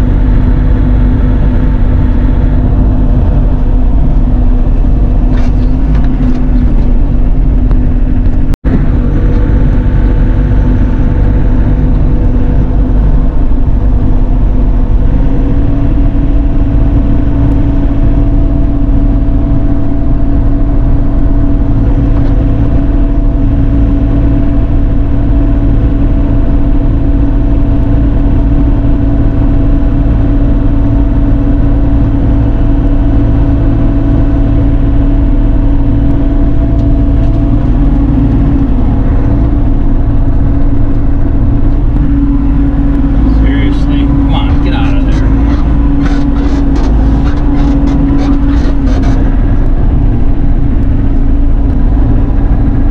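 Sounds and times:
excavator bucket digging dirt: 0.0 - 14.2, 35.9 - 52.8
diesel engine running: 0.0 - 52.9.

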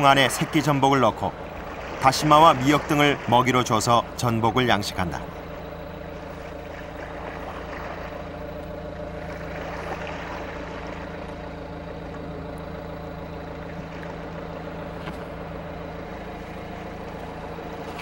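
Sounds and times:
motor running steadily: 0.0 - 18.0.

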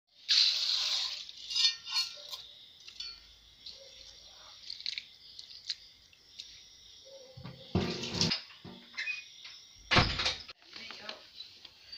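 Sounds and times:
rice poured into metal bowl: 0.2 - 1.6.

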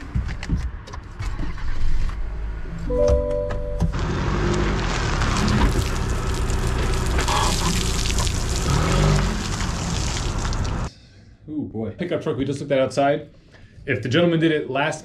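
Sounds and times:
truck engine: 1.6 - 10.9
water splashing onto gravel: 5.1 - 10.9.

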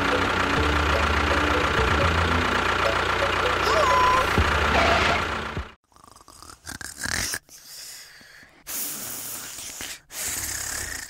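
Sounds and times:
engine chugging: 0.0 - 5.8.

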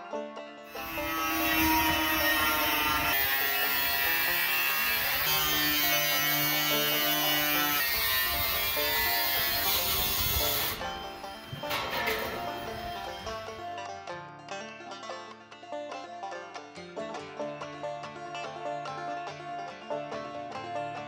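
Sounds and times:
angle grinder cutting steel: 0.7 - 13.8.

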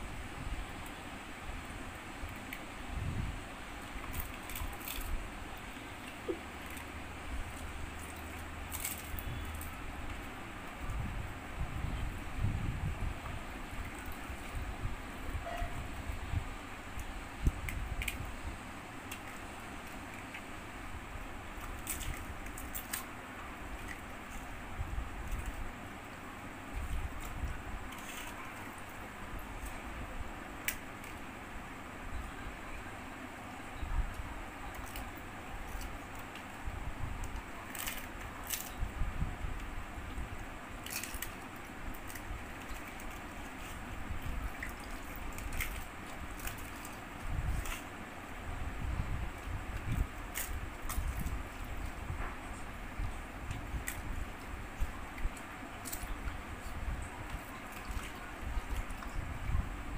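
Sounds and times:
faint liquid sounds: 0.0 - 59.9
steady background hiss: 0.0 - 59.9
crisp shells cracking: 8.0 - 9.8, 40.8 - 43.8
crunching while eating: 37.1 - 38.8.

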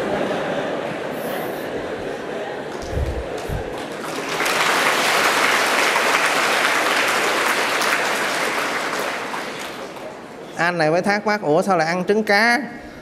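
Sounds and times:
large audience applauding: 2.6 - 10.5.

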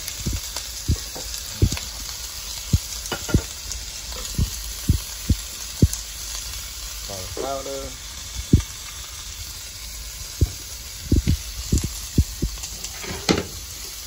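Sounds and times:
vegetables sizzling in frying pan: 0.0 - 14.0
sharp pops: 0.2 - 1.9, 2.7 - 3.7, 4.3 - 6.0, 8.5 - 8.7, 10.4 - 12.7.

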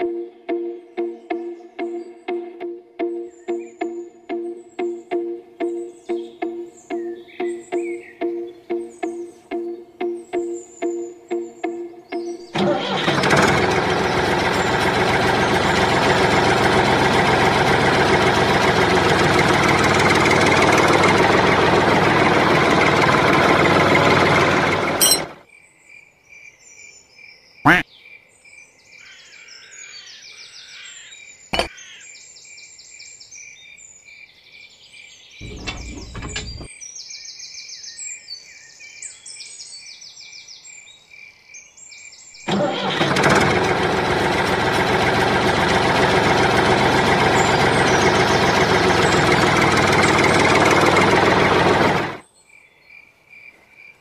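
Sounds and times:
birds chirping: 3.2 - 12.6, 35.4 - 37.2, 44.8 - 52.1
model tractor running: 12.5 - 25.4, 35.4 - 36.7, 42.5 - 52.2.

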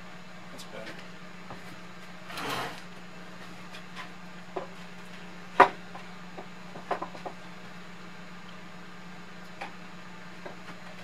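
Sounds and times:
low steady hum: 0.0 - 11.0
wooden tray scraping: 2.2 - 2.8.

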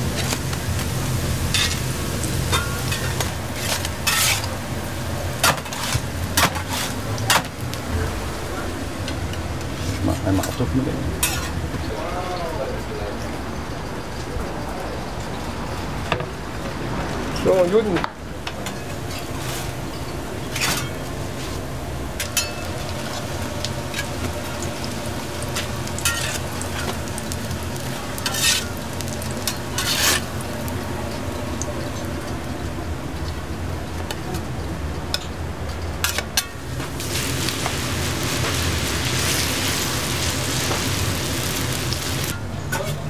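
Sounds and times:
potato pancakes sizzling on griddle: 0.0 - 12.6, 18.6 - 43.0
metal spatula scraping and knocking: 2.6 - 4.5.

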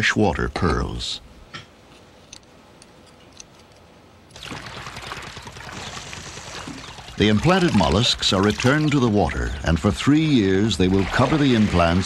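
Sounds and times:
water pouring and splashing: 4.3 - 12.0.

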